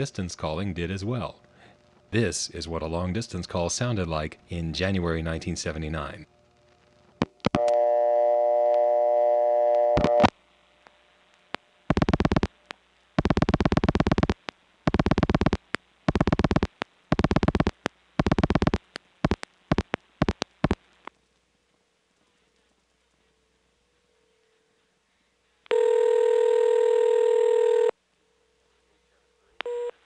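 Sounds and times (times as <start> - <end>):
buzzy telephone dial tone: 7.5 - 10.3, 25.7 - 27.9, 29.6 - 30.0.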